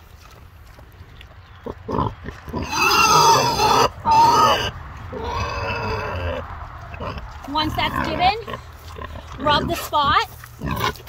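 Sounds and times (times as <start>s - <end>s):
pig grunting: 1.6s - 11.0s
pig squealing loudly: 1.9s - 6.4s.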